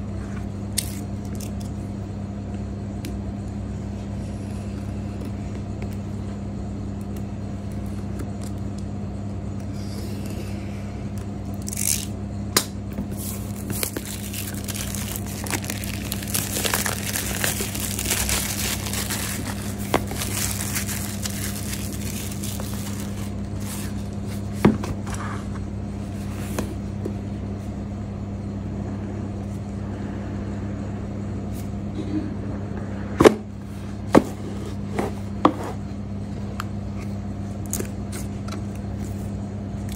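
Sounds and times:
steady low hum: 0:00.0 - 0:39.9
plastic shrink wrap crinkling: 0:13.2 - 0:24.3.

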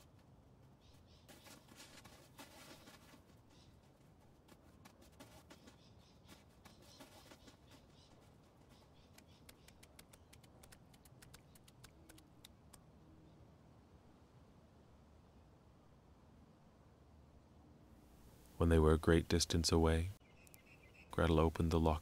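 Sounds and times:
faint clicks: 0:09.1 - 0:12.9.

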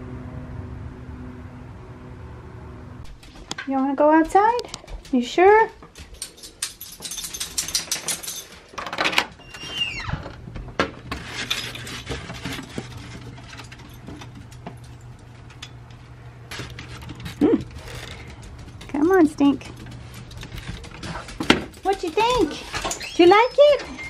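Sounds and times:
collar tags jingling: 0:04.3 - 0:08.9, 0:11.4 - 0:15.9, 0:16.8 - 0:24.0
dog claws clicking on tile: 0:04.3 - 0:09.0, 0:16.7 - 0:23.6
door opening with squeak: 0:09.1 - 0:10.4, 0:22.6 - 0:24.0.

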